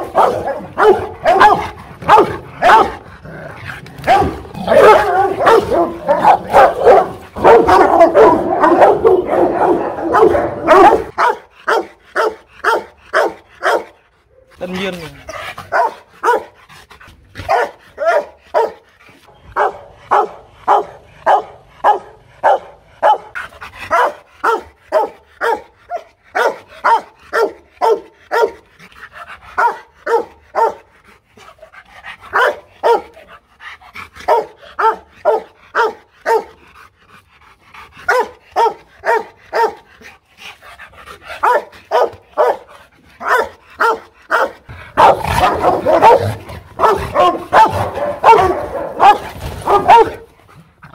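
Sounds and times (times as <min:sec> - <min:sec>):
dog barking: 0:00.0 - 0:03.0, 0:04.0 - 0:14.5, 0:15.7 - 0:16.6, 0:17.4 - 0:18.8, 0:19.6 - 0:28.6, 0:29.6 - 0:30.9, 0:32.3 - 0:33.2, 0:34.2 - 0:36.6, 0:38.1 - 0:39.8, 0:41.4 - 0:50.3.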